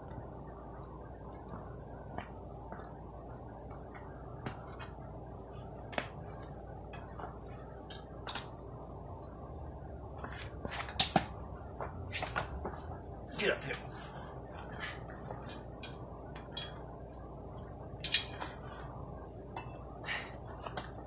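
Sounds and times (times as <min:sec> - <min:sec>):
low hum: 0:00.0 - 0:21.0
sharp metallic clinks: 0:15.4 - 0:18.6.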